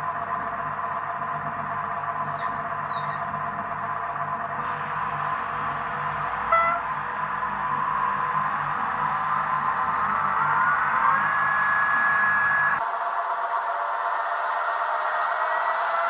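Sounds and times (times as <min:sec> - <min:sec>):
model diesel engine sound from speaker: 0:00.0 - 0:16.0.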